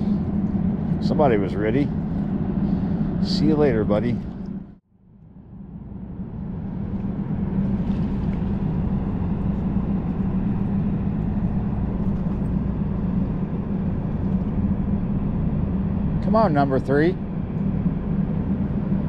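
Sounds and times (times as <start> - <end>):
low rumble: 0.0 - 19.0
low ship hum: 0.0 - 19.0.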